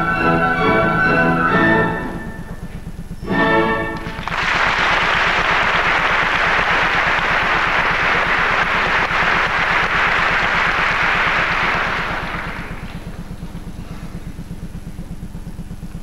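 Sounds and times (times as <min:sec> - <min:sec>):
audience applauding: 0:04.0 - 0:13.2.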